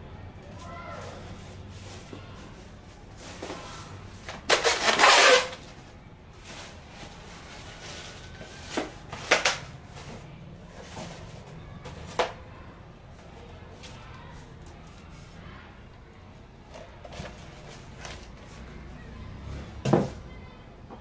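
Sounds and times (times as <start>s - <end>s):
foam and plastic scraping: 1.0s - 5.8s, 6.4s - 12.4s.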